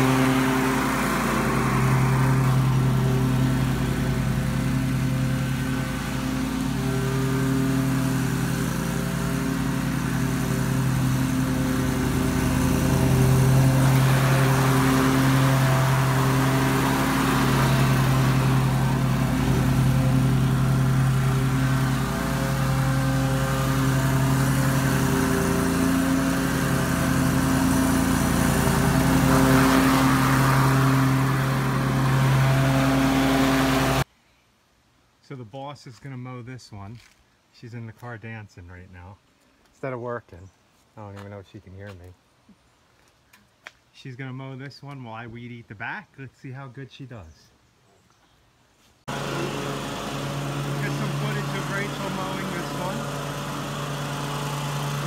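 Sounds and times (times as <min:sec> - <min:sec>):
lawn mower engine running: 0:00.0 - 0:34.1, 0:49.1 - 0:55.0.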